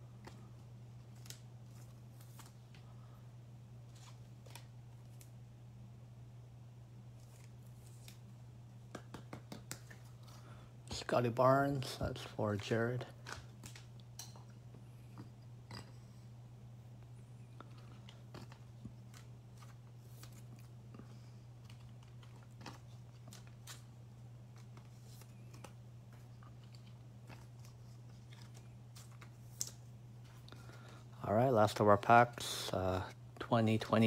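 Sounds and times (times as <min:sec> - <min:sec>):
steady low hum: 0:00.0 - 0:34.0
trading cards clicking and rustling: 0:08.9 - 0:11.2, 0:21.6 - 0:23.9, 0:24.5 - 0:31.0.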